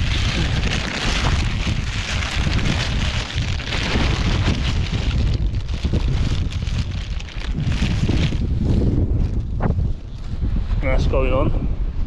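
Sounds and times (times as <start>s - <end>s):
plastic bag rustling: 0.0s - 9.6s
wind buffeting microphone: 0.0s - 12.0s.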